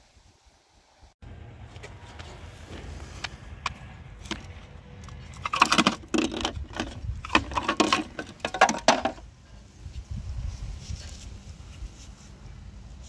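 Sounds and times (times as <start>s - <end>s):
wind rumble on microphone: 6.4s - 7.7s, 9.5s - 13.0s.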